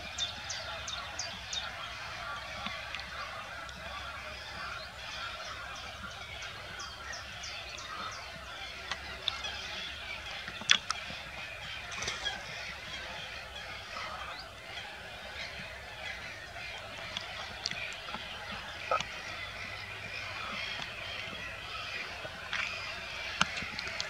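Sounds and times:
waterbirds calling: 0.0s - 24.0s.

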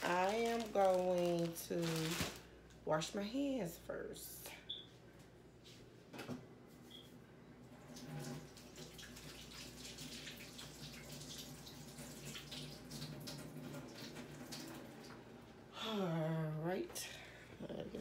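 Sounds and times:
faint running tap water: 7.8s - 15.5s.

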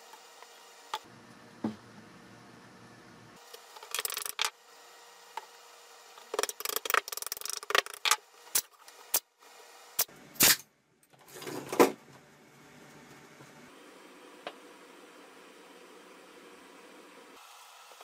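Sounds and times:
pneumatic brad nailer firing: 10.0s - 10.7s.

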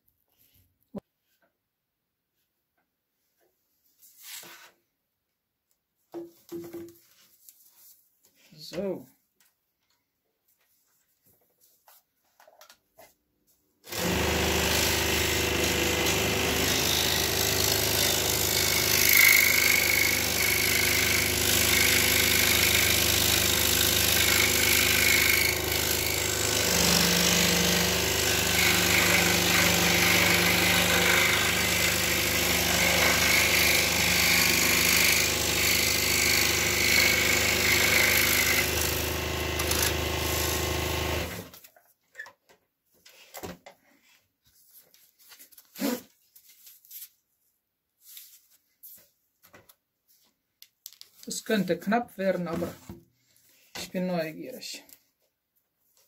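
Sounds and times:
scroll saw cutting wood: 13.9s - 41.7s.

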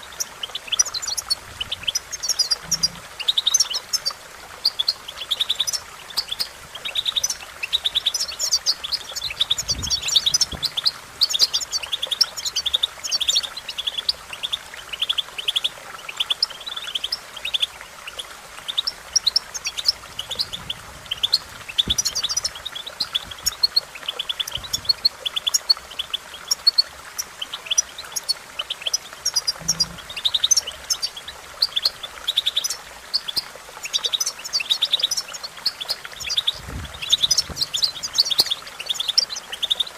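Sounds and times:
bird twittering song: 0.0s - 39.9s.

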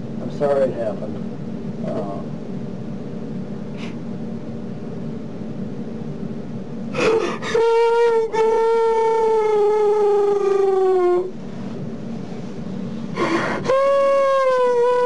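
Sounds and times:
sharp gasping in-breath: 13.1s - 13.6s.

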